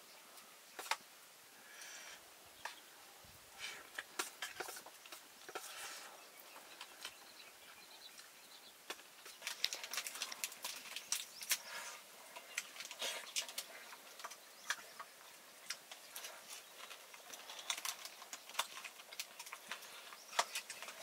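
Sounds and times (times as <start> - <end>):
chewing: 9.3 - 21.0.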